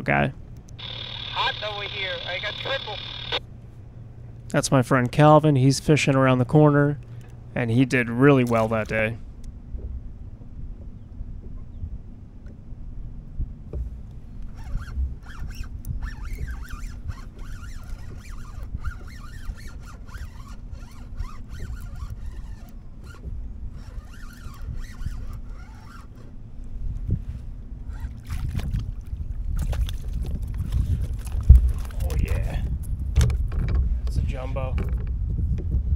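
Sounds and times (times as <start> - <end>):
fishing reel clicking and whirring: 0.8 - 3.4, 14.6 - 26.3
wind rumble on microphone: 9.2 - 35.9.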